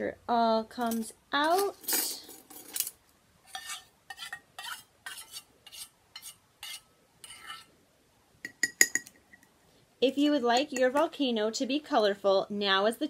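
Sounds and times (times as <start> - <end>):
spoon scraping metal cup: 3.5 - 7.7.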